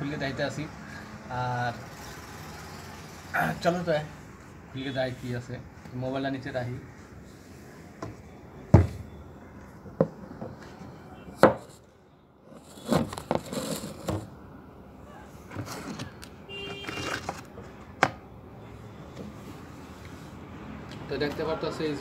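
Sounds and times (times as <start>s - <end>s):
rustling and scraping: 12.5s - 14.3s, 15.5s - 17.5s.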